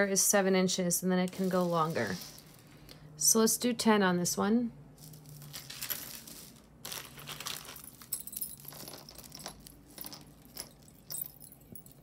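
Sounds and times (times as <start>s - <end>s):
jewelry chains and beads jingling: 5.0s - 12.0s.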